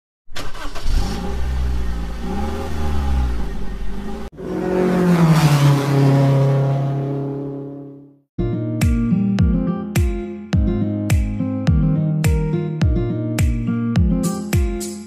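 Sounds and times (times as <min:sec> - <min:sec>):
engine revving: 0:00.4 - 0:08.2.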